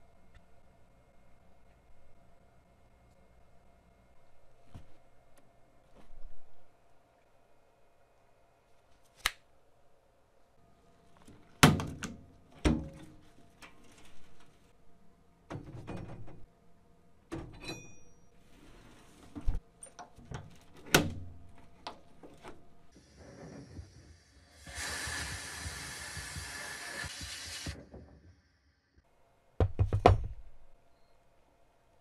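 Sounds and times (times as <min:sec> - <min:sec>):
steady hiss: 0:23.0 - 0:27.9.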